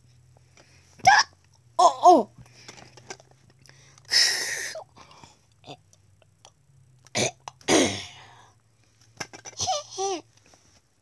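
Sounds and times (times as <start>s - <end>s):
faint low hum: 0.0s - 11.0s
person making breathy hiss: 3.8s - 5.3s.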